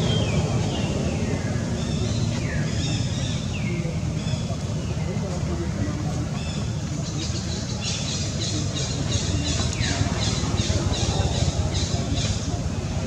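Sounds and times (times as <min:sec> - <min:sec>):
steady low rumble: 0:00.0 - 0:07.6.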